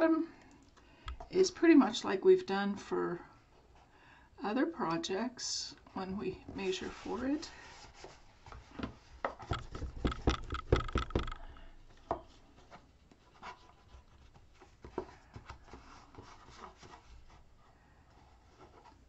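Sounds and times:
knocks on box: 0:09.5 - 0:12.2.

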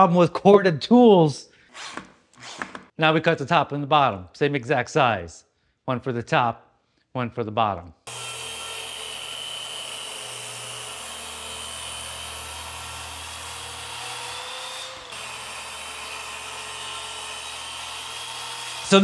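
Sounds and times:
power saw cutting wood: 0:08.1 - 0:19.0.

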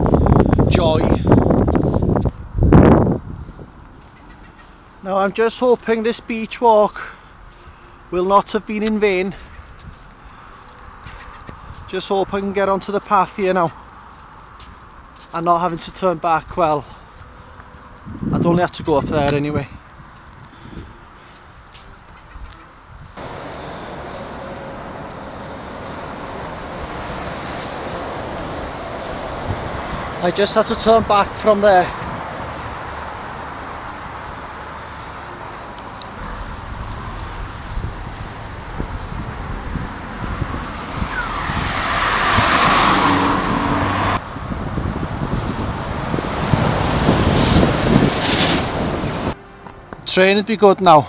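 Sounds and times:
wind buffeting microphone: 0:00.0 - 0:04.2, 0:18.0 - 0:21.0, 0:22.2 - 0:34.3, 0:35.8 - 0:50.1
traffic roar: 0:00.0 - 0:51.0
lorry passing: 0:23.2 - 0:51.0.

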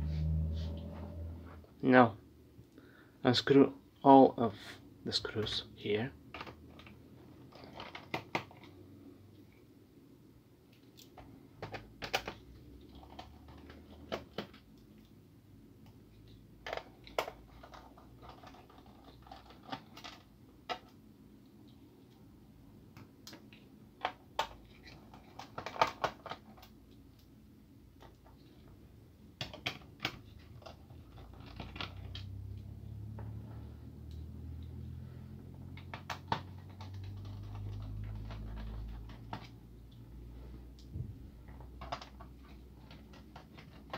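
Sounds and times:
low rumble: 0:00.0 - 0:01.8.

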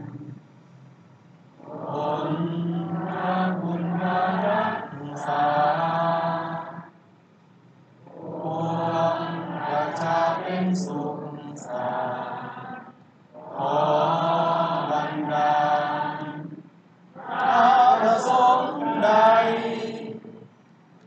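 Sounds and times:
person singing slowly: 0:01.6 - 0:06.7, 0:08.0 - 0:16.5.

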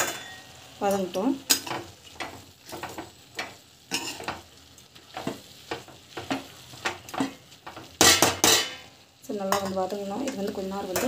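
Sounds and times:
low sizzle: 0:00.0 - 0:11.0
spatula scraping vegetables: 0:01.7 - 0:08.7.

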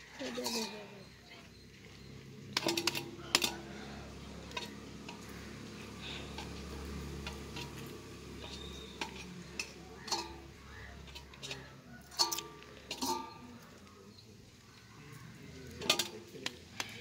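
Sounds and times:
steel plate clinking: 0:00.3 - 0:01.6, 0:02.5 - 0:03.7, 0:04.4 - 0:13.8, 0:15.8 - 0:16.3.

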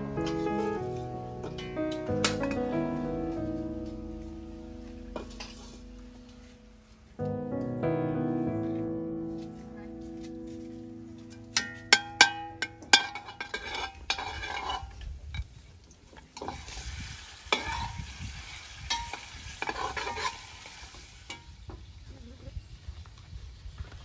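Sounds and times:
pot ringing: 0:11.2 - 0:14.9
metal ladle clanking on pot: 0:11.3 - 0:15.0
garlic and bones sizzling in oil: 0:11.6 - 0:22.0.

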